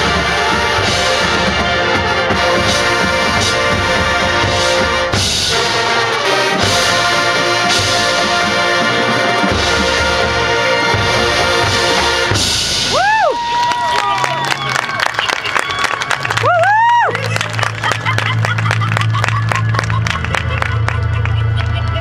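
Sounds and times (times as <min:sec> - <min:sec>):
marching band brass chords: 0:00.0 - 0:13.6
percussion: 0:00.0 - 0:22.0.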